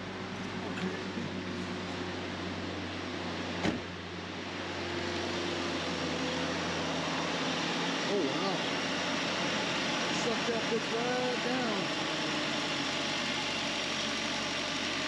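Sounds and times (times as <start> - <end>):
car engine idling: 0.0 - 15.0
truck door shutting: 3.6 - 3.9.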